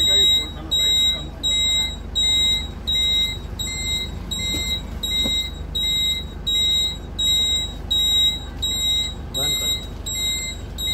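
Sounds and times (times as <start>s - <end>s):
low steady rumble: 0.0s - 10.9s
warning buzzer short beeps: 0.0s - 10.9s.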